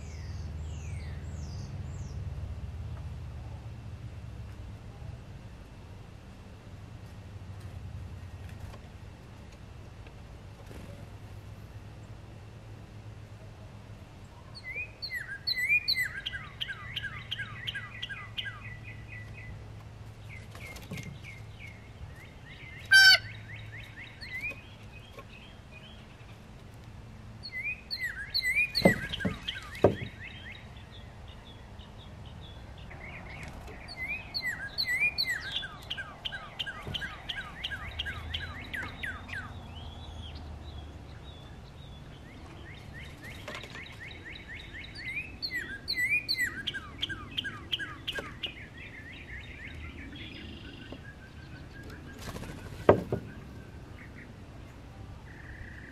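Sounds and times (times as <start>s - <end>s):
songbirds whistling: 14.5s - 19.6s, 20.2s - 26.4s, 27.4s - 54.4s
sharp knocks: 28.8s - 30.2s.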